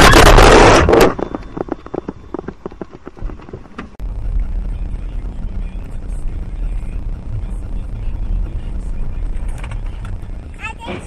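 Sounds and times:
car crash crack: 0:00.0 - 0:04.0
car driving rumble: 0:00.0 - 0:11.0.

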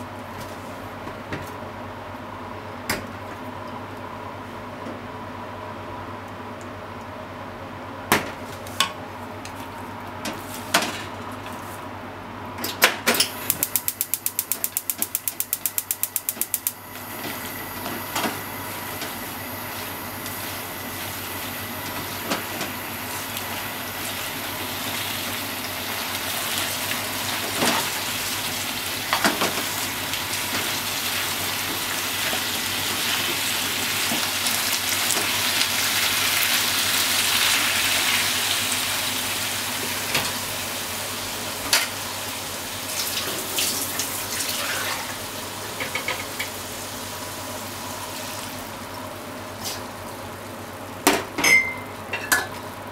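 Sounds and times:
gas stove igniter clicking: 0:13.2 - 0:16.8
food sizzling in a frying pan: 0:16.9 - 0:48.8.

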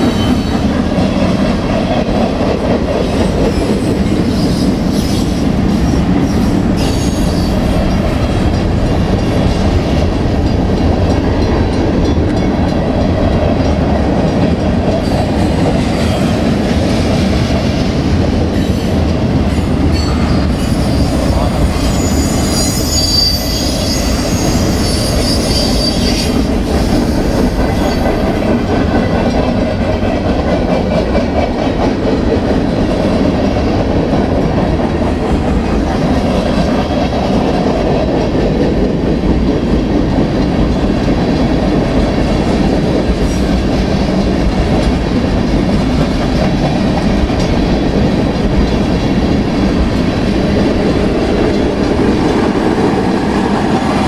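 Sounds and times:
train wheels rumbling on rails: 0:00.0 - 0:54.0
high wheel squeal: 0:06.8 - 0:08.0, 0:19.9 - 0:26.5
wheels clacking over rail joints: 0:24.2 - 0:54.0.

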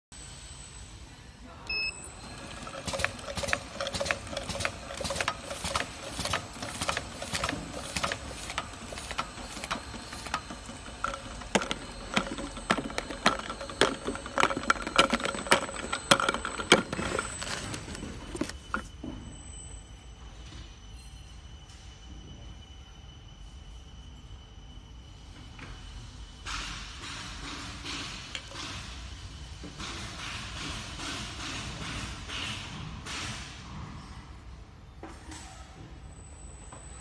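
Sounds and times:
short beep: 0:01.7 - 0:02.4
labeling machine humming: 0:01.7 - 0:18.9
rapid machine clacks: 0:02.4 - 0:17.0.

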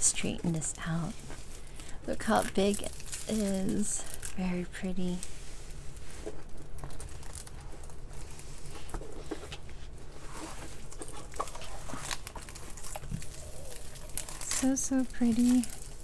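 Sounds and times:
low steady hum: 0:00.0 - 0:16.0
plastic film rustling and crinkling: 0:00.0 - 0:16.0.

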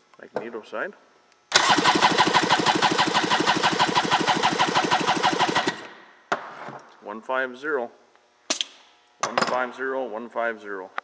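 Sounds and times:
engine cranking on starter: 0:01.5 - 0:05.8.

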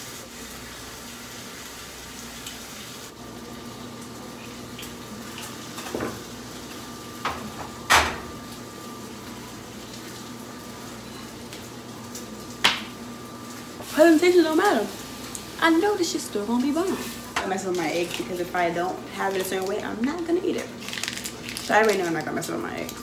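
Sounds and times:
food sizzling in a pan: 0:00.0 - 0:23.0
pan and utensils clattering: 0:04.8 - 0:06.3.

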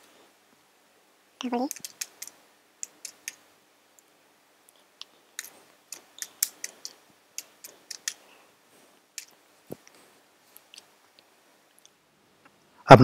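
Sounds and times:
computer keyboard typing: 0:01.6 - 0:03.4, 0:05.4 - 0:08.2.

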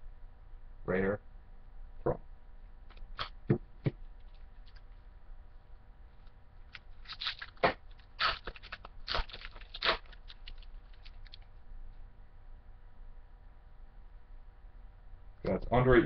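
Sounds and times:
wrapper crinkling and tearing: 0:06.7 - 0:11.5.

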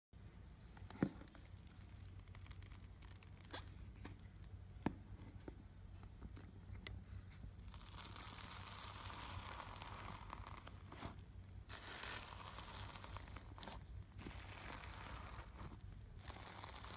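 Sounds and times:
slime crackling and crunching: 0:01.1 - 0:04.6, 0:07.6 - 0:16.9.

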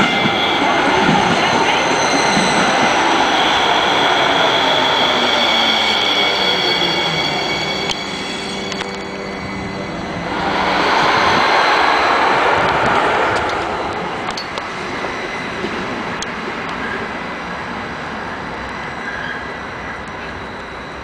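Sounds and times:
wheels rumbling on rails: 0:08.6 - 0:17.2.

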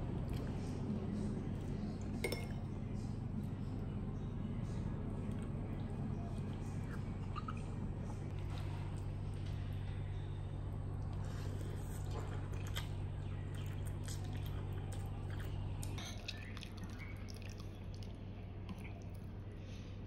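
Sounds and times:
steady low hum: 0:00.0 - 0:20.0
person chewing noodles: 0:11.0 - 0:19.2.

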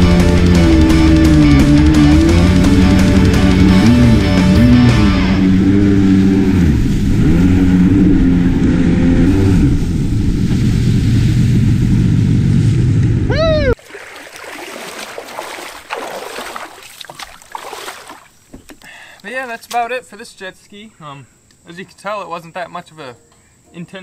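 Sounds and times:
jet ski engine running hard: 0:00.0 - 0:13.4
rush of water spray: 0:13.8 - 0:18.3
light splashing in shallow water: 0:13.8 - 0:19.9.

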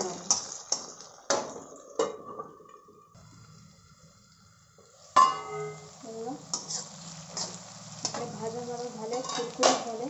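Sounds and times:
pot steaming: 0:03.2 - 0:10.0.

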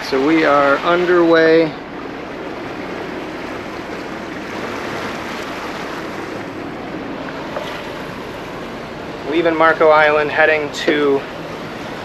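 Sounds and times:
faint low engine hum: 0:00.0 - 0:12.0
water rushing: 0:00.0 - 0:12.0
wind: 0:00.0 - 0:12.0.

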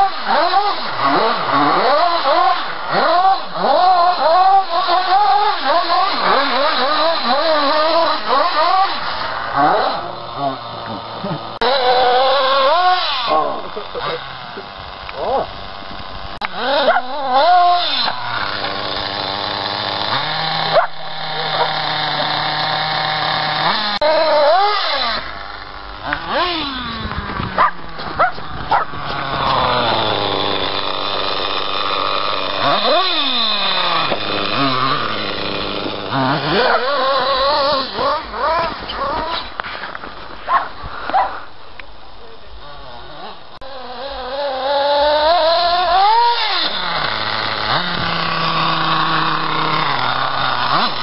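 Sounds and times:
model buggy engine buzzing: 0:00.0 - 0:51.0
dog barking: 0:16.8 - 0:17.1, 0:20.7 - 0:20.9, 0:27.6 - 0:28.9, 0:40.5 - 0:41.4.

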